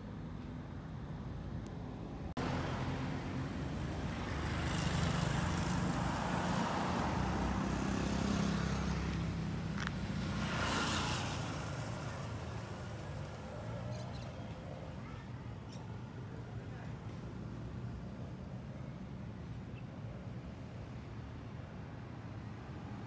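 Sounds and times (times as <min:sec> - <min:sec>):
cars passing: 0:02.4 - 0:15.8.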